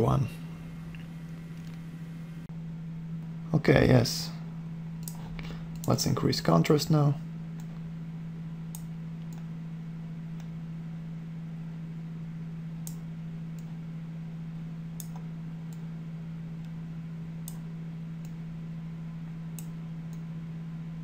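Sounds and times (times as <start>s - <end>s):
low electrical hum: 0.0s - 21.0s
computer mouse clicking: 5.0s - 5.2s, 15.0s - 15.9s, 17.4s - 17.6s.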